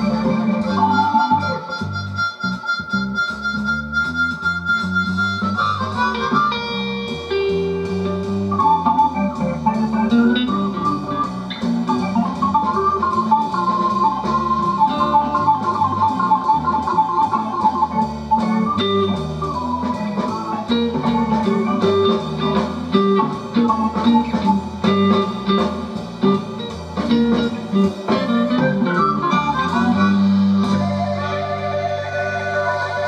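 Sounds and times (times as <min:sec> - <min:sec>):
guitar music through speaker: 0:00.0 - 0:33.0.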